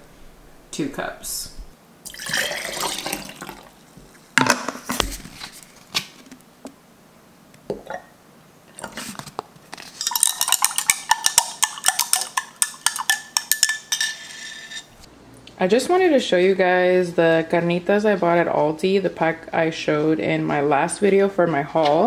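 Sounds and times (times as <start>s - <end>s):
metal straw clinking glass: 10.0s - 14.9s.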